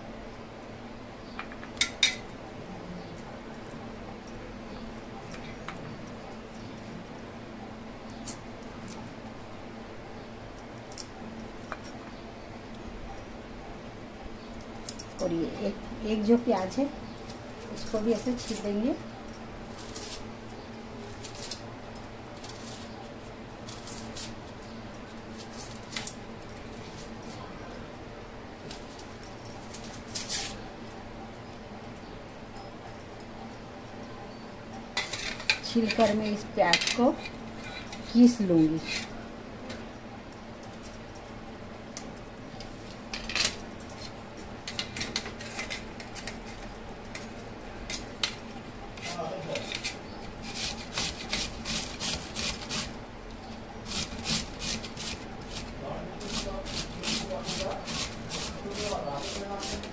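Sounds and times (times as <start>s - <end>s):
steady low hum: 0.0s - 59.9s
metal kitchen utensils clinking: 1.6s - 2.3s, 35.0s - 39.8s.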